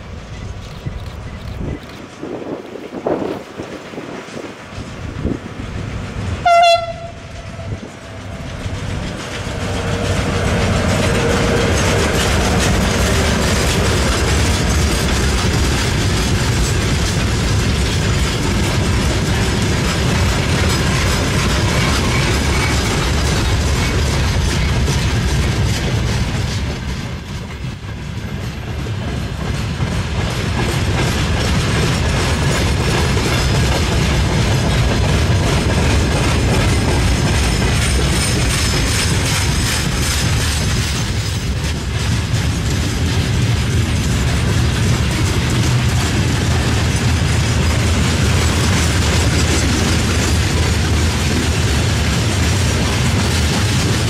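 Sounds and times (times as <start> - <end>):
train wheels rumbling on rails: 0.0 - 54.0
locomotive horn blast: 6.4 - 7.8.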